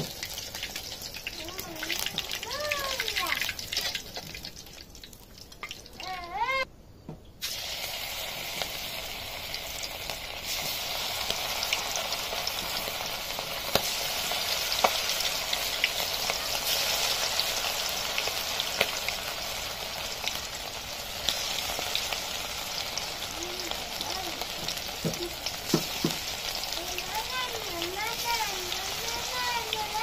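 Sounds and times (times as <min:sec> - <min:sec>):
oil sizzling: 0:00.0 - 0:06.7, 0:07.4 - 0:30.0
oil popping: 0:07.4 - 0:19.1, 0:21.2 - 0:30.0.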